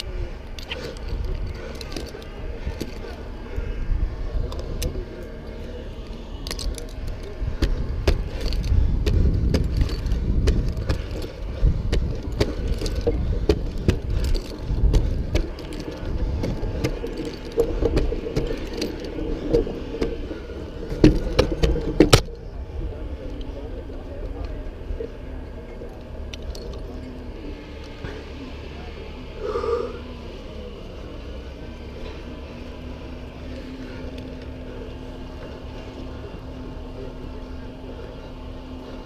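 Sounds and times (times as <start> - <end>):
climbing hardware jangling and clicking: 0.0 - 3.3, 6.4 - 22.3
wind rumble on camera: 0.0 - 5.4, 6.0 - 25.6.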